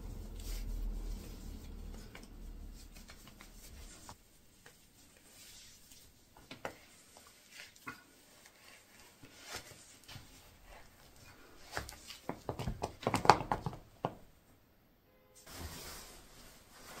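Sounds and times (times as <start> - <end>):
sneakers rustling and tapping: 11.6 - 14.3.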